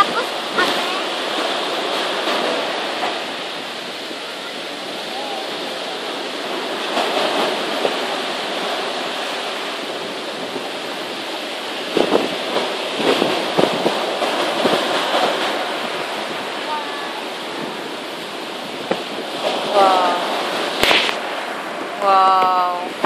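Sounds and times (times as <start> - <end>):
sea surf rushing: 0.0 - 23.0.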